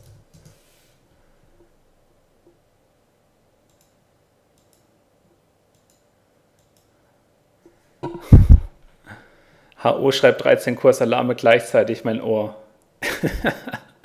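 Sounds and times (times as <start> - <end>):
faint clicks: 3.7 - 4.0, 4.6 - 4.9, 5.7 - 6.9.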